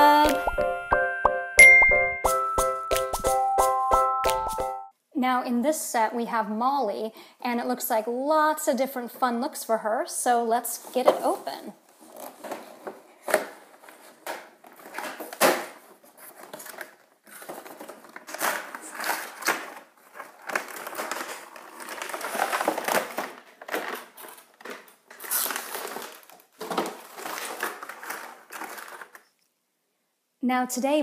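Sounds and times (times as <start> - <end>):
cardboard and plastic packaging rustling: 10.7 - 29.4.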